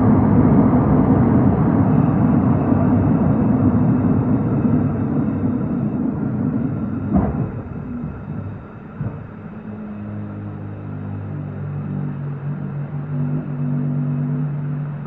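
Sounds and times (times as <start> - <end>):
rumble of wheels on rail: 0.0 - 15.0.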